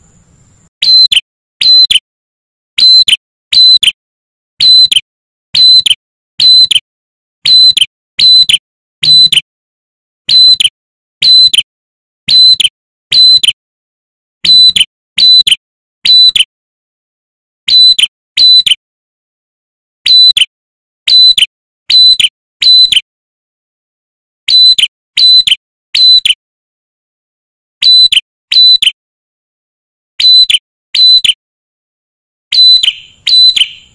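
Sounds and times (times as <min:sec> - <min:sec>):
bird whistled calls: 0:00.0 - 0:02.0, 0:02.8 - 0:04.0, 0:04.6 - 0:05.0, 0:05.6 - 0:06.8, 0:07.4 - 0:09.4, 0:10.3 - 0:11.6, 0:12.3 - 0:13.5, 0:14.4 - 0:16.4, 0:17.7 - 0:18.7, 0:20.1 - 0:20.4, 0:21.1 - 0:23.0, 0:24.5 - 0:26.4, 0:27.9 - 0:28.9, 0:30.2 - 0:31.3, 0:32.5 - 0:33.9.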